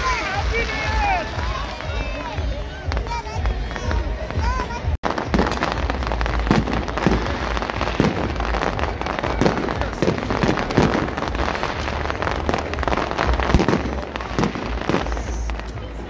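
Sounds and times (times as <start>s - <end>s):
fireworks bangs and pops: 0.0s - 16.0s
crackle of bursting sparks: 5.0s - 15.9s.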